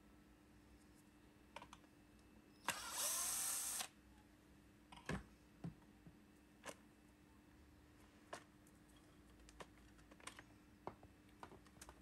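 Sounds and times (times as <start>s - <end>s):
cordless drill spinning up: 2.7s - 3.9s.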